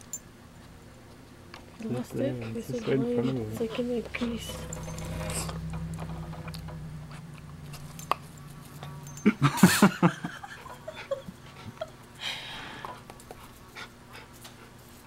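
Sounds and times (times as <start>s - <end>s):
steady low hum: 0.0s - 15.0s
dog whining and yelping: 2.5s - 5.9s.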